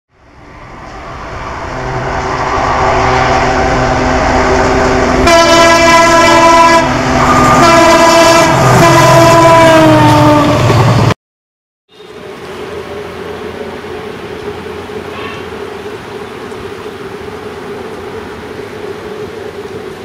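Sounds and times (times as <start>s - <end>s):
diesel locomotive approaching: 0.1s - 11.2s, 11.9s - 20.0s
multi-tone air horn blasts: 5.2s - 10.6s.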